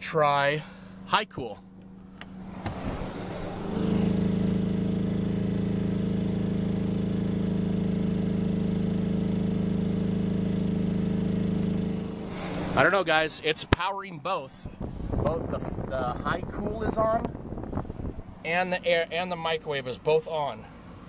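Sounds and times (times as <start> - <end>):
generator running under load: 3.4 - 13.2.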